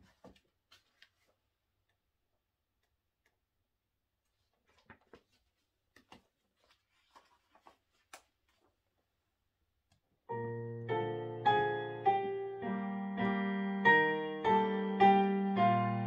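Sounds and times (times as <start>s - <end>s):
sheet music pages turning: 0.0s - 1.4s, 4.3s - 8.8s
digital piano chords: 10.3s - 16.0s.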